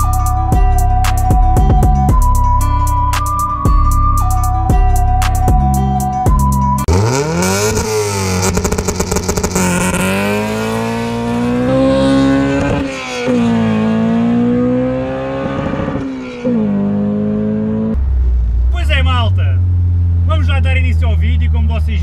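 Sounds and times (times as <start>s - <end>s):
car engine accelerating hard: 6.8s - 20.8s.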